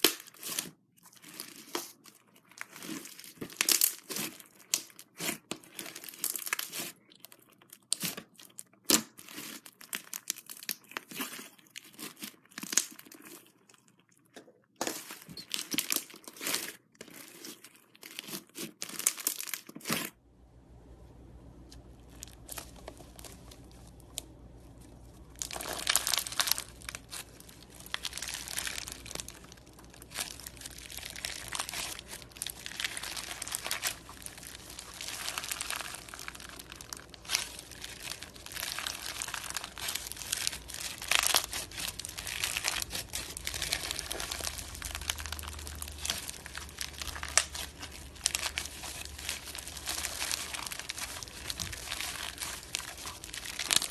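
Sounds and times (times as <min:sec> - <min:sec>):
low steady hum: 0:20.2 - 0:53.9
slime squished by hand: 0:21.6 - 0:53.9.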